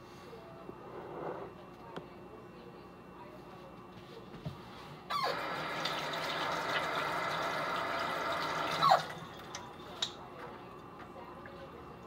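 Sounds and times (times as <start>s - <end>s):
water tap turning: 5.2s - 10.1s
water running into sink: 5.2s - 10.2s.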